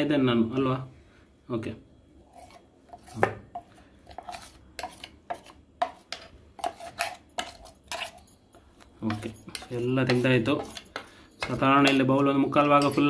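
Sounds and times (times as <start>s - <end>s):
spoon scraping batter from jar: 2.2s - 13.0s
spoon tapping: 9.1s - 13.0s.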